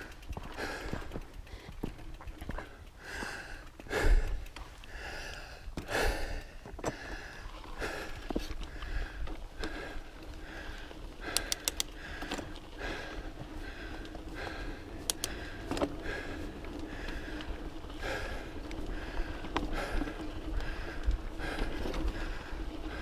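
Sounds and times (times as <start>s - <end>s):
person breathing hard: 0.0s - 2.0s, 2.6s - 23.0s
sharp clicks: 11.2s - 12.5s, 14.9s - 15.9s.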